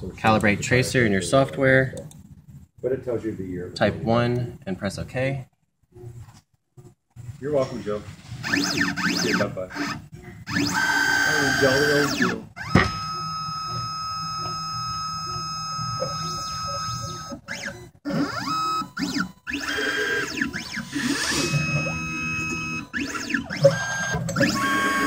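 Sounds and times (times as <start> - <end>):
stepper motors whining: 8.4 - 25.0.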